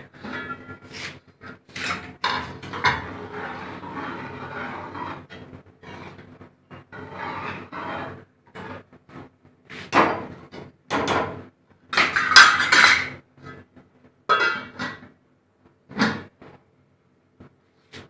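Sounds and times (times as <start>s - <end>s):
ladle scraping a steel pot: 0.1s - 8.8s.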